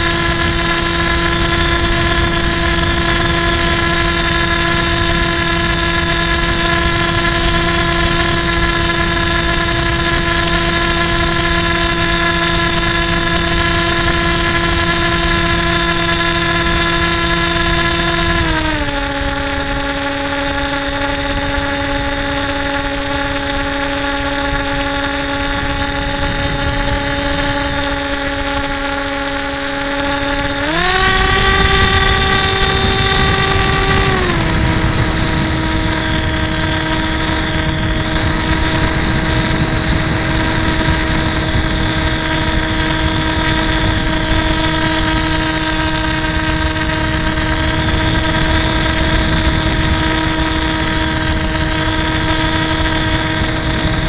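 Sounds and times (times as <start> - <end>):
electric motor and propeller whining: 0.0 - 54.0
wind rush: 24.2 - 28.8, 30.1 - 54.0.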